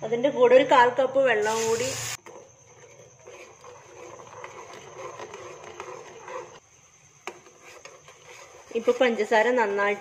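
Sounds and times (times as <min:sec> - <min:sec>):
metal spoon scraping saucepan: 0:01.4 - 0:06.6, 0:07.4 - 0:10.0.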